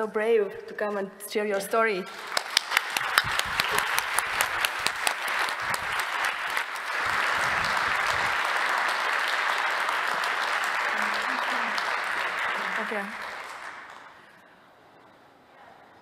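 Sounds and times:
audience applauding: 2.1 - 14.4.

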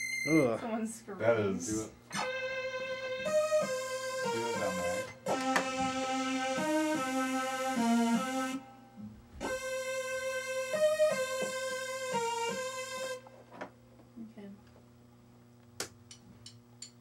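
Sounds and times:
electric keyboard sustained notes: 1.6 - 8.8, 9.4 - 13.2.

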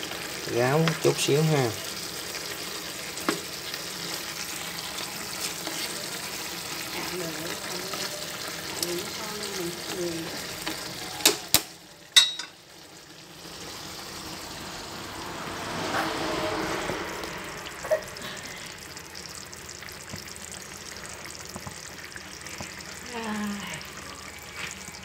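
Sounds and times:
meat sizzling in sauce: 0.0 - 25.0.

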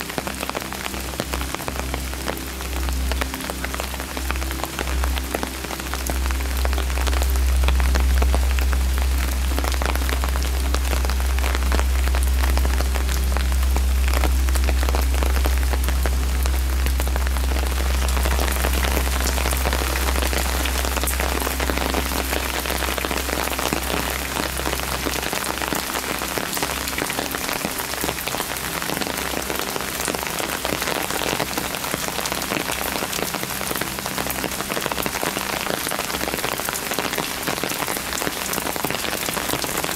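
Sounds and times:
rain on stone paving: 0.0 - 39.9
low rumble: 1.8 - 30.3.

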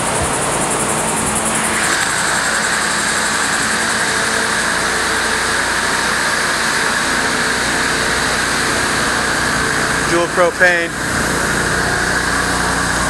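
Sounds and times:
mechanical drone with whine: 0.0 - 13.0.

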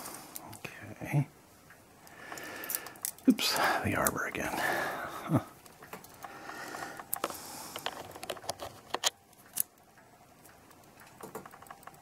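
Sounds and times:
small metallic clicks and taps: 6.9 - 12.0.

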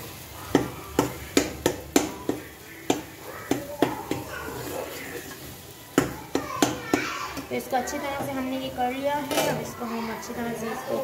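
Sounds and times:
metal spatula scraping a metal pan: 4.1 - 9.8.

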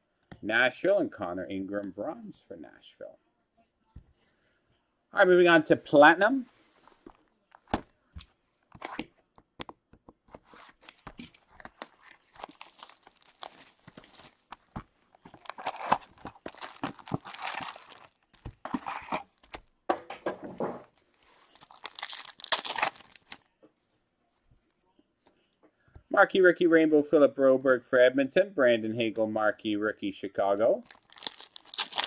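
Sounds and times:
foil packs tearing and crinkling: 11.4 - 19.6, 21.3 - 23.5, 30.8 - 32.0.

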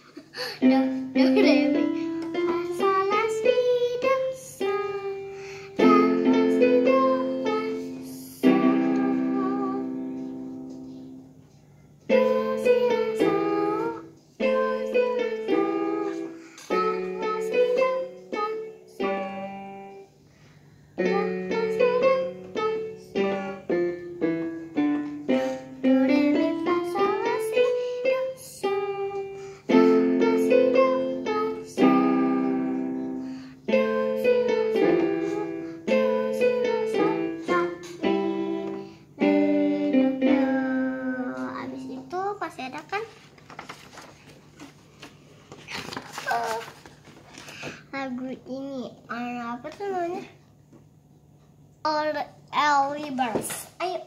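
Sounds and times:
electronic keyboard simple tune: 29.7 - 42.0.

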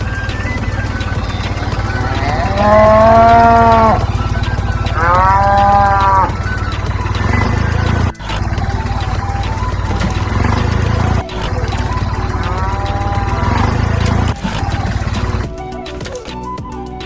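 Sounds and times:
background music: 0.0 - 17.0
cow mooing: 1.6 - 7.6, 12.1 - 14.3.

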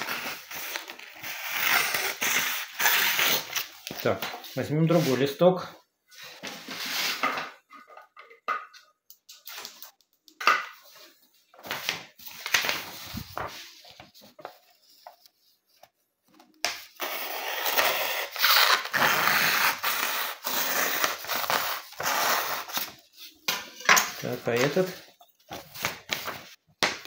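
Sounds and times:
paper rustling and crinkling: 10.9 - 16.6, 24.0 - 26.6.

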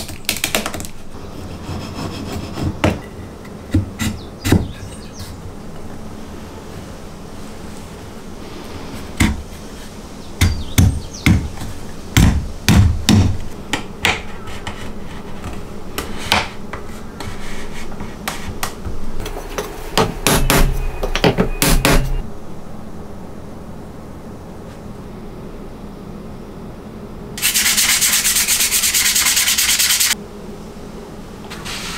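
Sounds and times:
hammer knocking on wood: 10.4 - 11.6, 12.2 - 13.4, 19.5 - 22.2.

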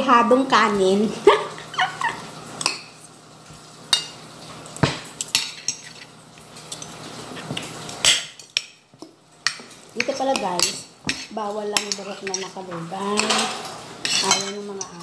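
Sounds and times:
cutlery scraping a plate: 5.2 - 8.7, 9.4 - 15.0.

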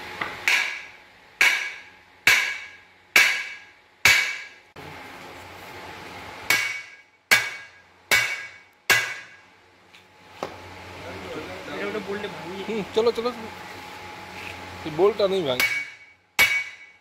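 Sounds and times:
sledgehammer striking steel: 0.4 - 4.6, 6.5 - 9.4, 15.6 - 17.0.

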